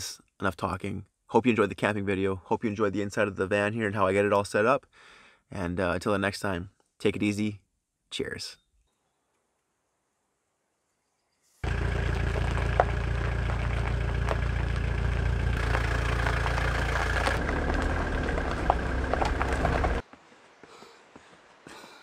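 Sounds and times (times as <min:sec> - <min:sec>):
van engine running: 0:11.6 - 0:20.0.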